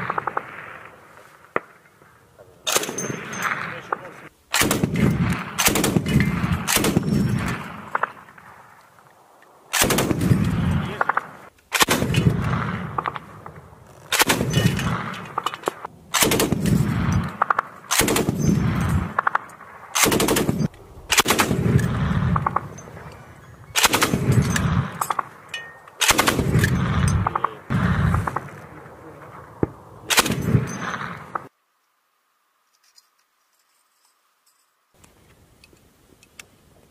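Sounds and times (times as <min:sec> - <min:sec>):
machine gun firing bursts: 0:04.5 - 0:07.5, 0:09.7 - 0:11.2, 0:16.1 - 0:22.8, 0:23.8 - 0:25.2, 0:26.0 - 0:27.2.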